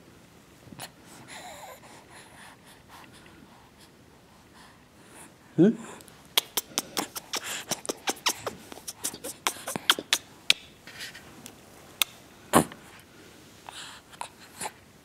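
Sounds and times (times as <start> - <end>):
mouth clicks and smacks: 6.2 - 10.7, 12.0 - 12.8.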